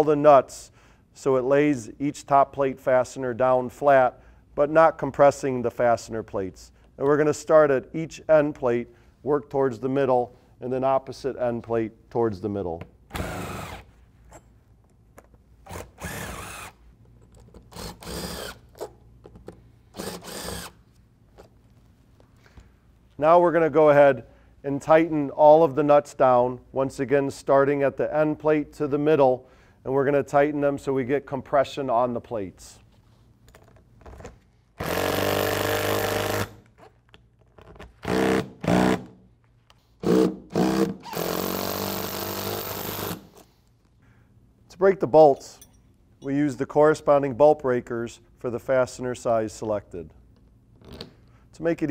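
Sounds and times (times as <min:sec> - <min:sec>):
impact driver spinning nuts: 0:13.1 - 0:13.9, 0:15.6 - 0:16.8, 0:17.5 - 0:18.9, 0:19.9 - 0:20.8.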